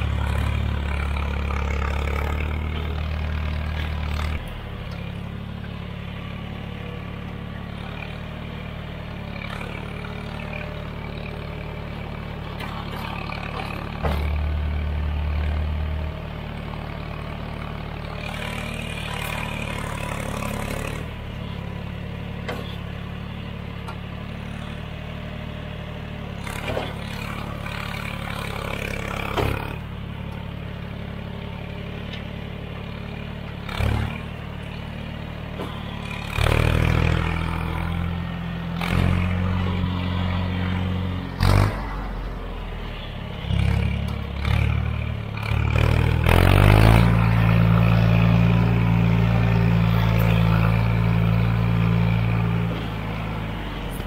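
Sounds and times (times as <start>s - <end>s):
tractor engine running under load: 0.0s - 54.0s
knocks and clatter from loader: 12.5s - 14.8s, 22.3s - 22.9s, 26.4s - 30.5s, 35.4s - 36.6s.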